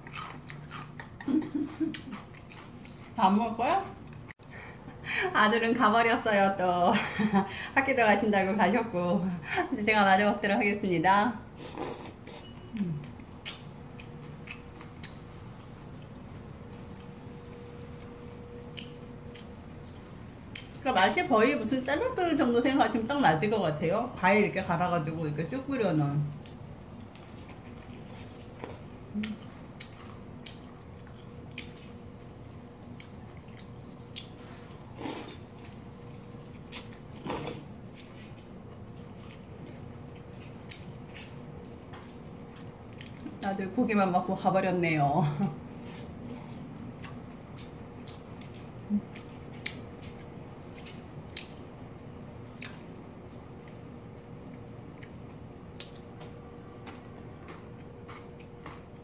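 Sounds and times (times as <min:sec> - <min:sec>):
wet chewing and mouth smacks: 0:00.0 - 0:03.2, 0:11.8 - 0:17.1, 0:18.7 - 0:20.8, 0:26.4 - 0:32.0, 0:32.8 - 0:34.4, 0:36.4 - 0:43.4, 0:45.9 - 0:51.6, 0:52.4 - 0:53.9, 0:54.5 - 0:59.0
faint steady hum: 0:00.0 - 0:59.0.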